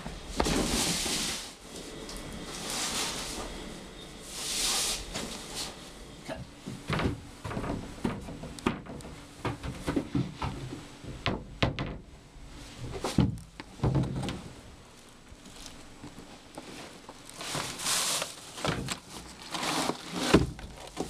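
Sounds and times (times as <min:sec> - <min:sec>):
cardboard box scraping on tile: 0:02.5 - 0:03.5, 0:16.7 - 0:21.0
cupboard doors knocking and rattling: 0:06.6 - 0:12.1, 0:13.2 - 0:14.4.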